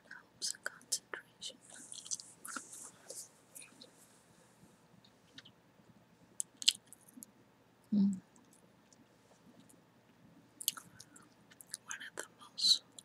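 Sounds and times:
gum chewing mouth clicks: 10.6s - 11.8s.

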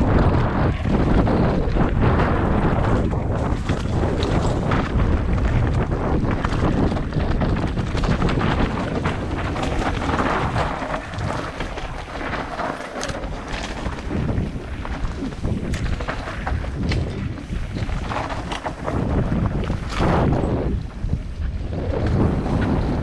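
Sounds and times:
bike rattling: 0.0s - 23.0s
wind buffeting microphone: 0.0s - 23.0s
tyres clattering over rocks: 2.8s - 20.6s.

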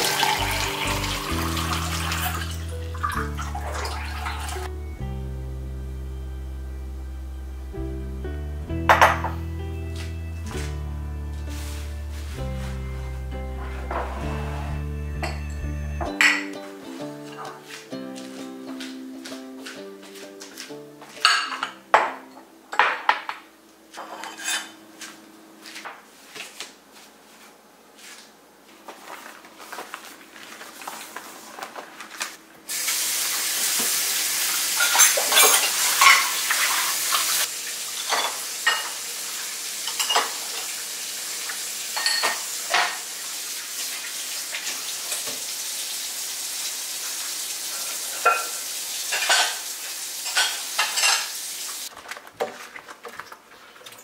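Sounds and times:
faucet water running: 0.0s - 4.7s, 32.7s - 51.9s
plates and cutlery clinking: 8.9s - 10.1s, 13.6s - 23.4s, 24.0s - 25.2s, 34.8s - 37.4s, 38.0s - 39.0s, 39.8s - 40.7s, 42.0s - 43.0s, 47.8s - 51.4s.

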